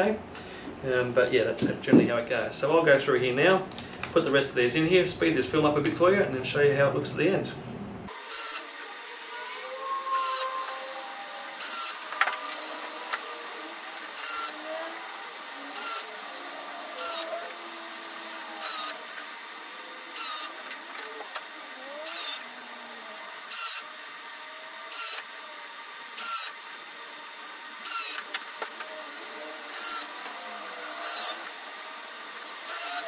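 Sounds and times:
cordless drill driving screws: 8.1 - 9.4, 10.1 - 33.0.

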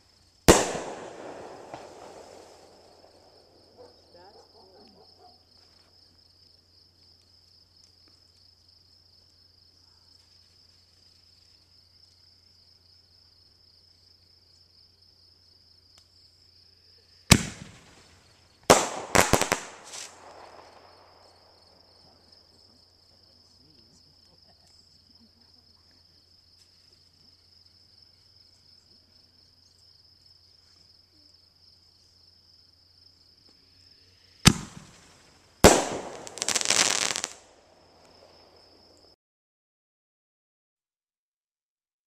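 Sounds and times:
firework shell bursting: 0.5 - 3.1, 17.3 - 21.3, 34.4 - 38.4
firework launch bang: 0.5 - 3.2, 17.3 - 21.1, 34.4 - 37.5.

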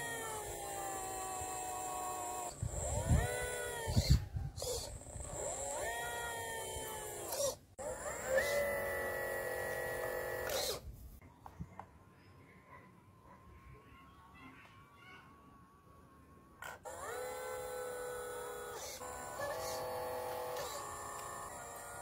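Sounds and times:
pump motor whining: 0.0 - 10.8, 15.6 - 22.0.

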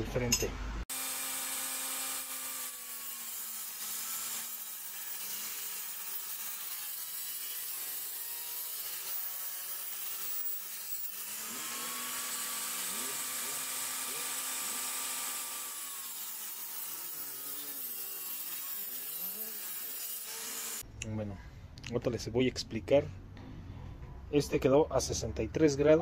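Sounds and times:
table saw cutting plywood: 0.9 - 20.8.

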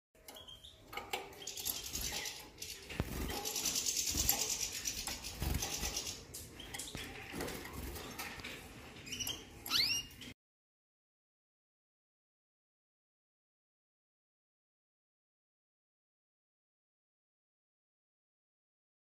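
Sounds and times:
songbird chirp: 0.2 - 10.4
high-pitched rattling chatter: 1.4 - 8.4.

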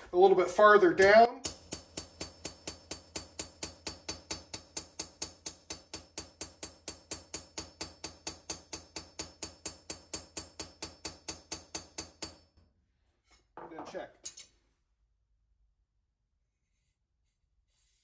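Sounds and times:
hammer tapping steel blade: 1.4 - 12.5.

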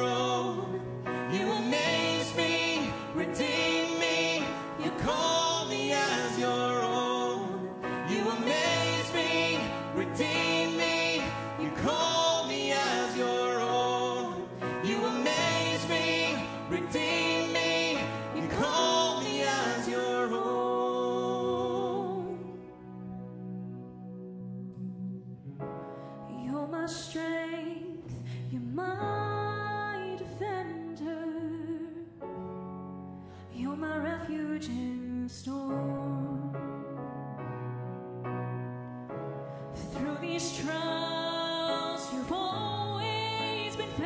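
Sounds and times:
person singing: 0.0 - 23.0.

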